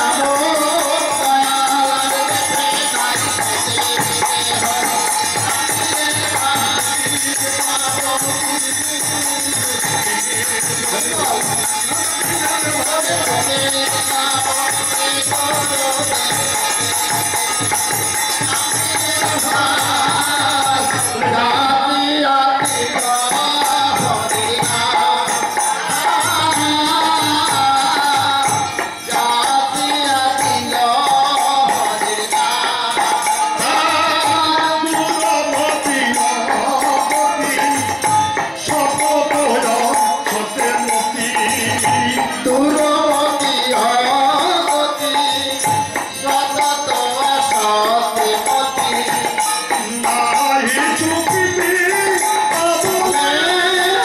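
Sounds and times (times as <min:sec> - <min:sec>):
jingling percussion: 0:00.0 - 0:54.0
group chanting: 0:32.9 - 0:35.0.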